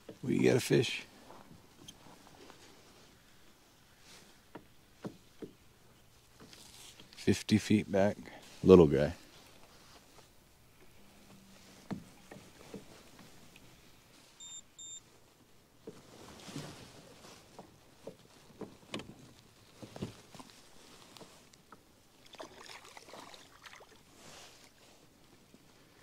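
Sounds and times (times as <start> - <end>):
short electronic beeps: 14.4 - 15.0
fish splashing: 22.2 - 24.1.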